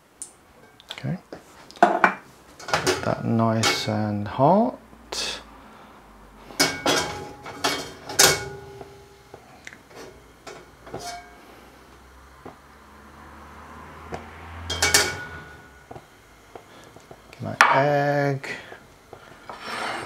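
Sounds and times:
wok scraping on metal ring: 0:10.0 - 0:11.4, 0:14.6 - 0:15.8, 0:19.4 - 0:20.0.

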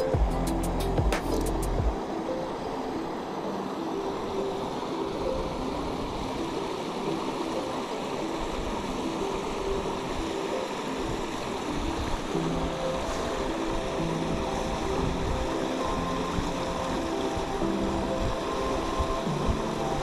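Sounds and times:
faint background music: 0:00.0 - 0:20.0
stream running over rocks: 0:00.0 - 0:20.0.

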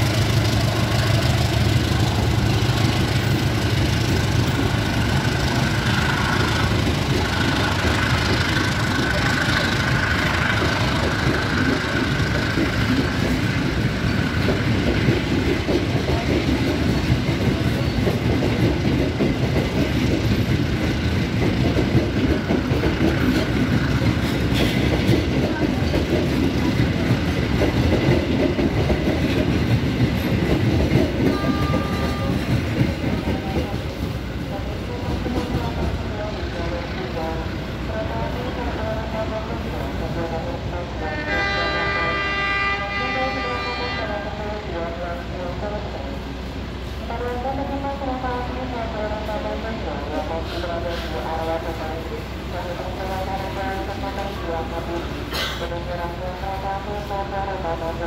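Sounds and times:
wheels clickety-clack over joints: 0:00.0 - 0:34.2
train wheels rumbling on rails: 0:00.0 - 0:58.0.

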